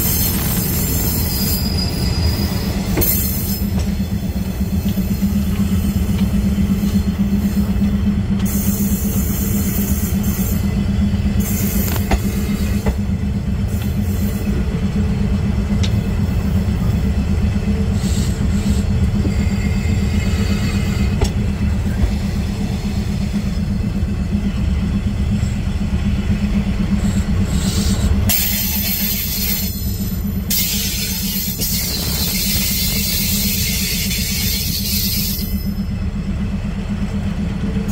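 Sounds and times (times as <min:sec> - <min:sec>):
wheels squealing: 0:00.0 - 0:05.9
rail joint clicks: 0:00.0 - 0:37.9
train wheels rumbling on rails: 0:00.0 - 0:37.9.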